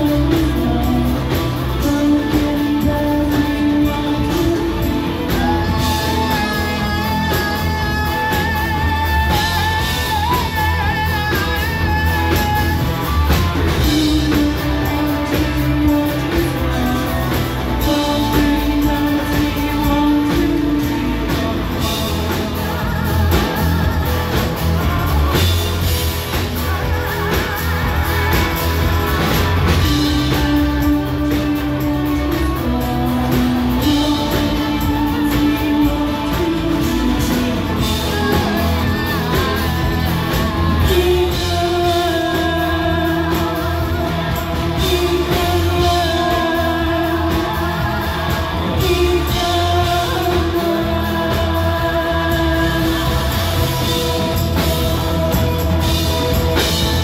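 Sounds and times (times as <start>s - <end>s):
person singing long notes: 0.0s - 57.0s
rock band playing: 0.0s - 57.0s.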